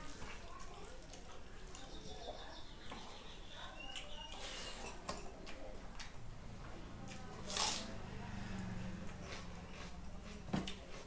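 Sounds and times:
chewing mouth sounds: 0:09.0 - 0:11.0.

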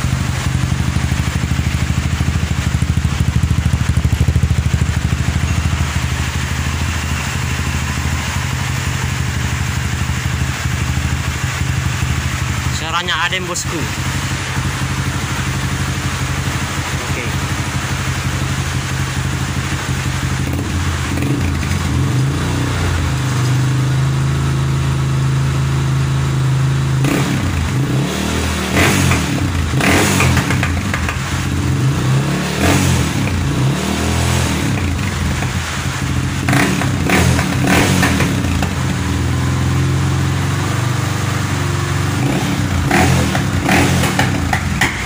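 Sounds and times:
motorcycle engine revving: 0:00.0 - 0:45.0
exhaust popping cracks: 0:42.6 - 0:45.0.

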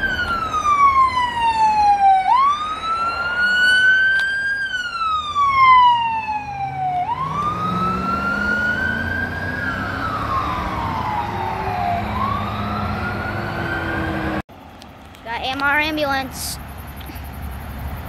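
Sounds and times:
emergency siren wailing: 0:00.0 - 0:14.4.

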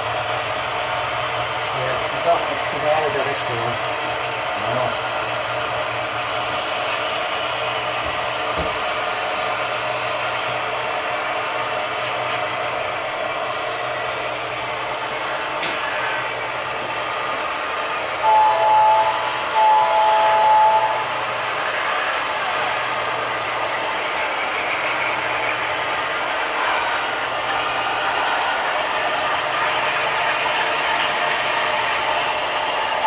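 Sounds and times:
steady background hum: 0:00.0 - 0:33.0
model locomotive horn: 0:18.2 - 0:21.2.

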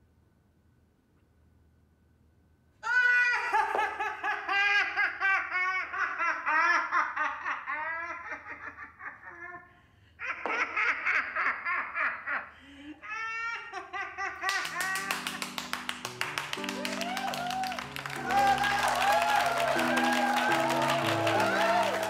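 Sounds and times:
person laughing hard: 0:02.8 - 0:15.4.

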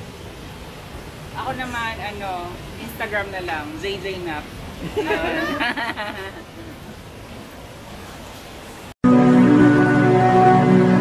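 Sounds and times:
faint steady hiss: 0:00.0 - 0:09.0
music with held chords and bass: 0:09.0 - 0:11.0.

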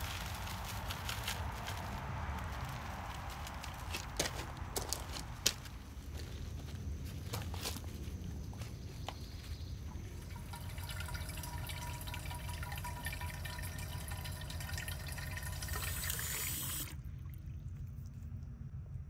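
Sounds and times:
hose water running into a pot: 0:10.2 - 0:17.1.

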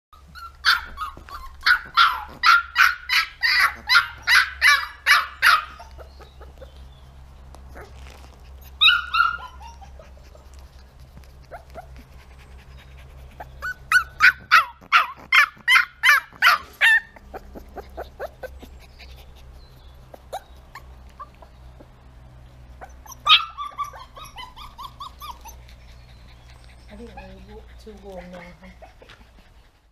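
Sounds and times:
puppy yapping: 0:00.2 - 0:06.8, 0:07.7 - 0:10.5, 0:13.4 - 0:19.2, 0:20.1 - 0:21.6, 0:22.8 - 0:27.6
puppy yelp: 0:00.2 - 0:06.8, 0:07.7 - 0:10.7, 0:11.4 - 0:21.6, 0:22.7 - 0:27.6.

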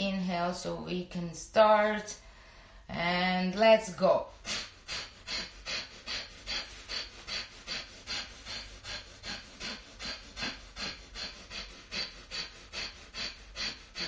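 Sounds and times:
woman breathing forcefully: 0:02.2 - 0:02.9, 0:04.4 - 0:14.0.

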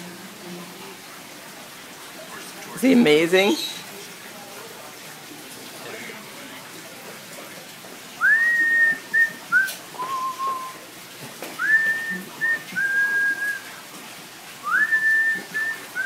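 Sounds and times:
whistled tune: 0:08.2 - 0:10.8, 0:11.6 - 0:13.6, 0:14.6 - 0:16.0.

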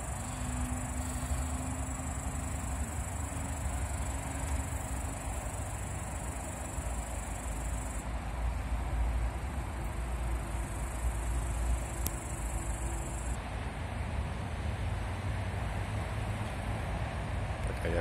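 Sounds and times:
crickets trilling: 0:00.0 - 0:08.1, 0:09.2 - 0:13.4
continuous low rumble: 0:00.0 - 0:18.0.

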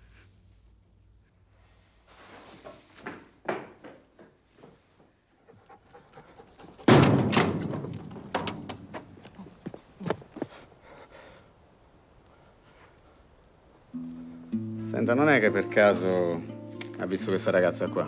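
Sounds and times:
quiet thuds: 0:06.8 - 0:10.5
sheet-metal door banging open: 0:06.9 - 0:08.9
rattling knocks: 0:06.9 - 0:09.2.

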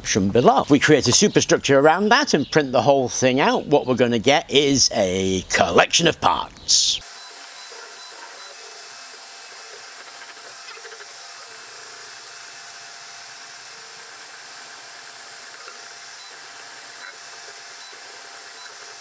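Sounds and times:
printer fans whirring: 0:05.5 - 0:19.0
stepper motor tones: 0:06.6 - 0:19.0.

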